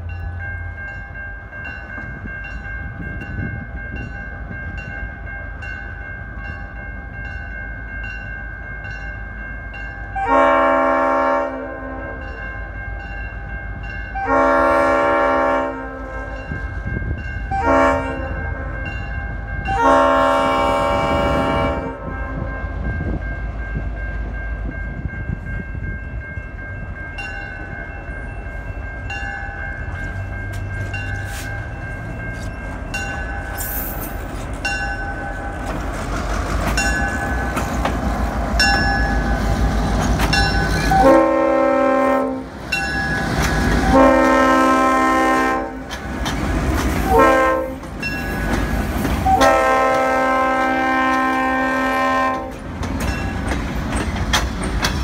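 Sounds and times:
crossing signal bell ringing: 0.0s - 54.2s
locomotive air horn: 10.2s - 12.4s, 14.1s - 16.5s, 17.4s - 18.8s, 19.7s - 22.8s, 40.9s - 42.5s, 43.8s - 45.9s, 47.1s - 47.8s, 49.2s - 52.6s.

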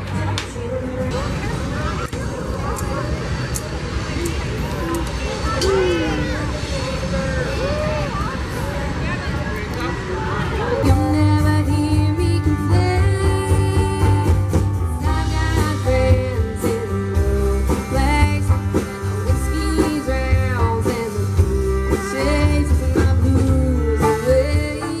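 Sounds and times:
electric guitar: 10.5s - 25.0s
electric bass: 10.8s - 25.0s
fiddle: 10.8s - 25.0s
woman singing: 10.8s - 25.0s
steady drum beat: 10.9s - 25.0s.

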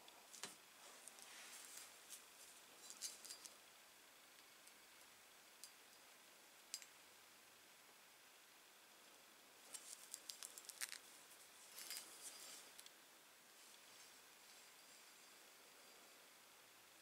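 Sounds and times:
faint clicks and rustles: 0.0s - 3.7s, 9.6s - 15.4s.

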